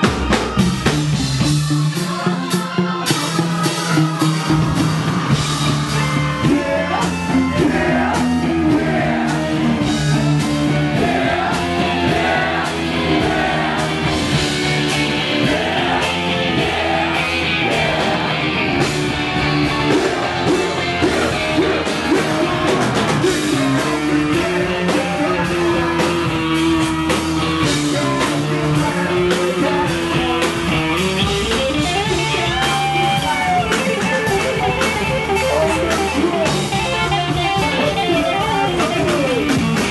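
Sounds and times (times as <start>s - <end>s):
bass guitar: 0.0s - 39.9s
drum kit: 0.0s - 39.9s
electric guitar: 0.0s - 39.9s
person singing into a microphone: 19.9s - 26.6s, 27.6s - 30.5s.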